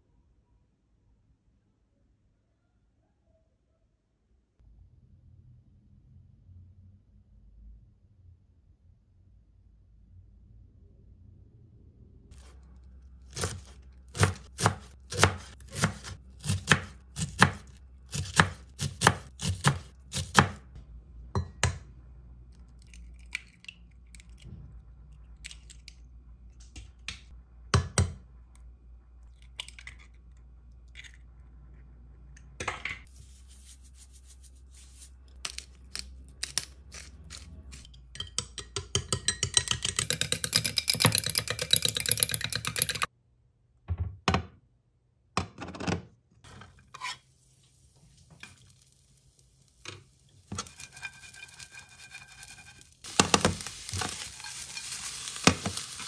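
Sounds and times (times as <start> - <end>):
knife chopping on wooden board: 13.3 - 20.6
egg cracking: 22.5 - 27.8, 28.5 - 31.9, 48.2 - 56.0
egg beaten in glass cup: 37.3 - 43.1.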